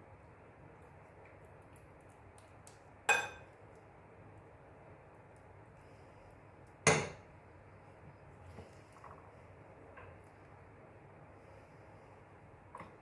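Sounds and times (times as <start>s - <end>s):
metal spoon clinking dishes: 3.1s - 3.5s.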